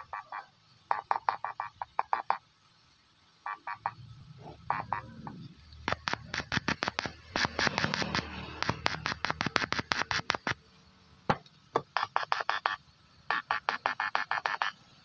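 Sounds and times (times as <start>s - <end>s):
loudspeaker clicking pulses: 4.7s - 10.6s.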